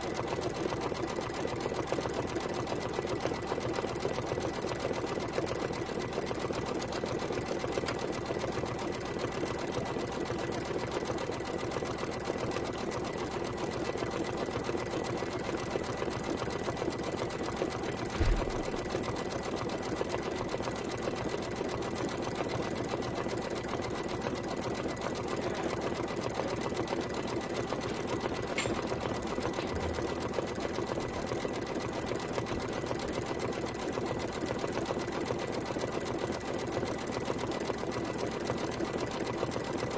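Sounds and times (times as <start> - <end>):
embroidery machine stitching: 0.0 - 39.9
thump: 18.0 - 18.9.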